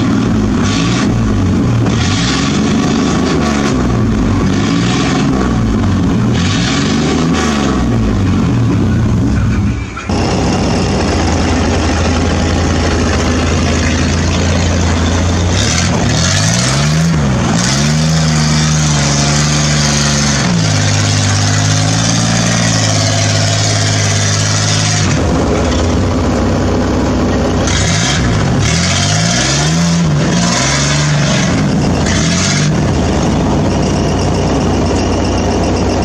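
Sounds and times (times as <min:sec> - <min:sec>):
truck engine revving: 0:00.0 - 0:36.0.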